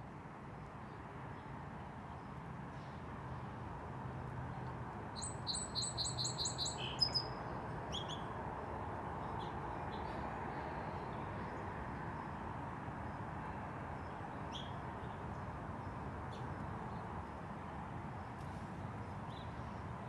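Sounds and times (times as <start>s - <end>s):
songbird singing: 4.5s - 8.4s, 14.0s - 17.5s, 18.2s - 20.0s.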